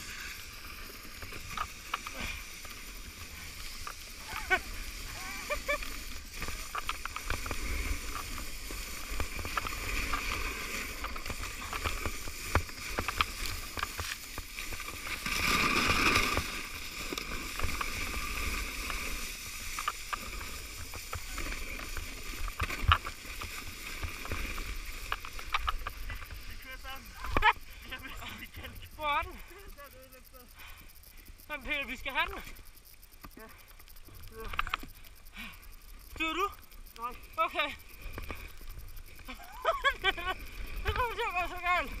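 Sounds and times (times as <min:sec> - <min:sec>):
snow spraying: 0:00.0 - 0:28.6
sledge sliding over snow: 0:00.0 - 0:29.0.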